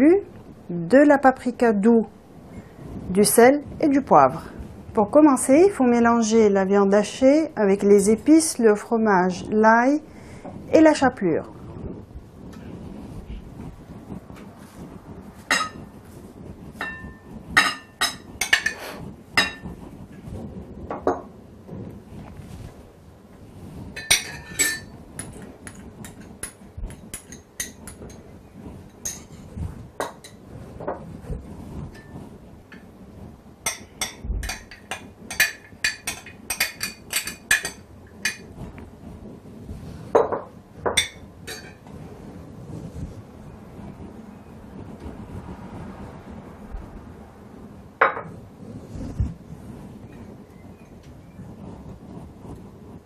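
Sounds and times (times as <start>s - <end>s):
metal spoon clinking on dishes: 24.0s - 28.2s, 33.7s - 38.5s.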